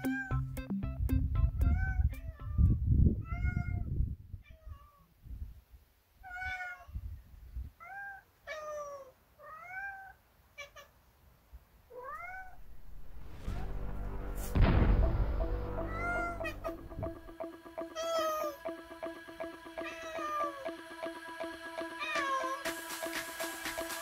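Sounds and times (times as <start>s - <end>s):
cat meowing: 6.2s - 7.0s, 7.8s - 11.0s, 11.9s - 12.6s
low rumble: 12.3s - 17.4s.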